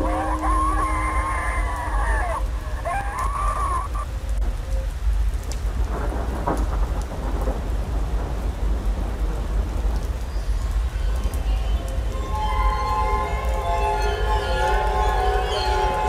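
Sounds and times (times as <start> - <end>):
steady rain: 0.0 - 16.0
low rumble of thunder: 4.1 - 12.6.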